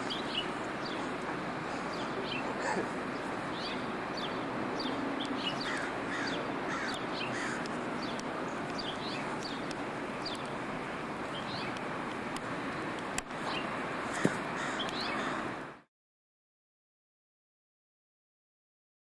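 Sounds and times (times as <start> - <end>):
birds chirping: 0.0 - 15.6
steady outdoor hiss: 0.0 - 15.9.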